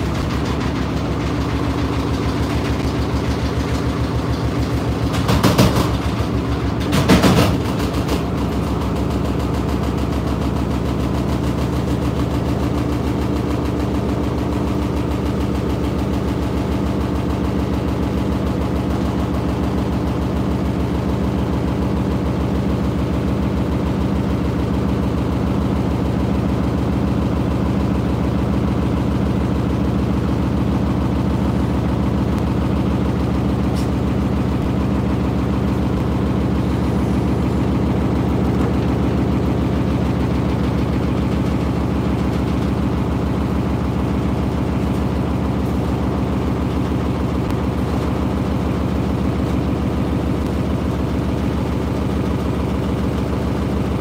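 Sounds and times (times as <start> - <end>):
washing machine drum knocking: 0.0 - 24.2, 27.8 - 51.4.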